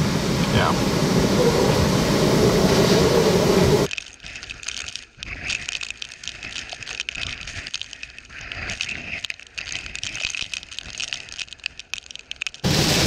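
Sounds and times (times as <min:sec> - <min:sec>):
strong wind rushing: 0:00.0 - 0:03.9
rain striking hard surfaces: 0:12.3 - 0:13.0.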